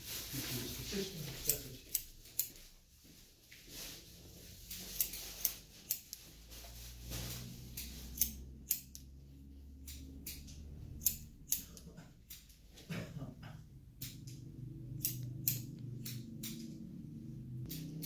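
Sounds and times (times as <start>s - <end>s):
scissors snipping hair: 1.4s - 2.7s, 4.7s - 6.3s, 7.6s - 9.2s, 9.8s - 12.6s, 14.0s - 16.8s, 17.6s - 18.0s
faint low hum: 8.0s - 18.0s.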